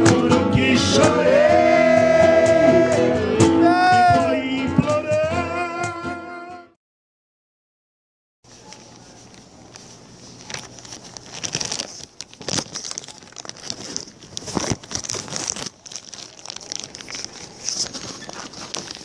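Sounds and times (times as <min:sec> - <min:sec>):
paper rustling and crinkling: 0:08.5 - 0:19.0.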